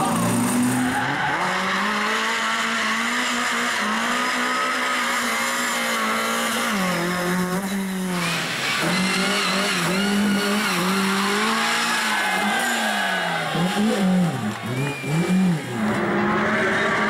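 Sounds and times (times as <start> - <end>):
rally car engine at high revs: 0.0 - 17.0
tyres squealing on tarmac: 0.1 - 2.4, 7.6 - 17.0.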